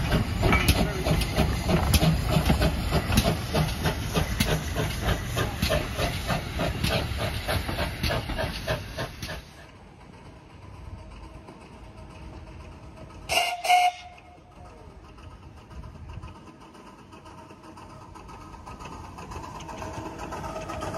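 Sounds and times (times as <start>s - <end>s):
steam hissing: 0.0s - 9.8s
steam locomotive chuffing: 0.0s - 20.9s.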